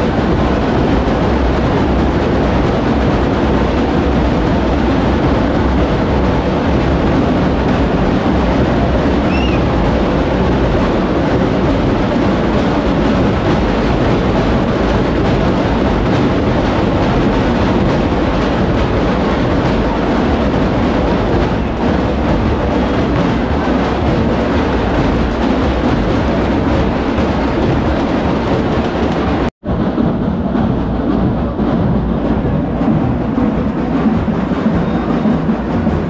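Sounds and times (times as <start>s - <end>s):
crowd hubbub: 0.0s - 36.0s
brief high chirp: 9.3s - 9.6s.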